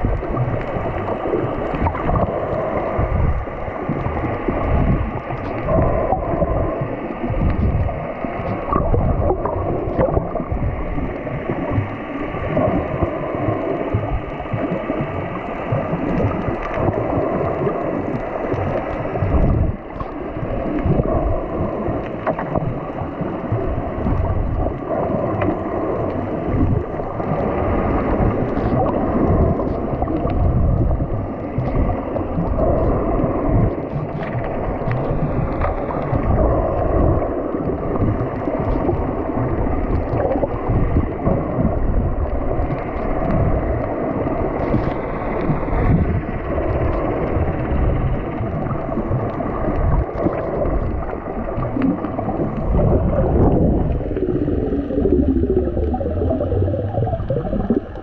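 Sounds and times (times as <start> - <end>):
muffled underwater water sloshing: 0.0 - 58.0.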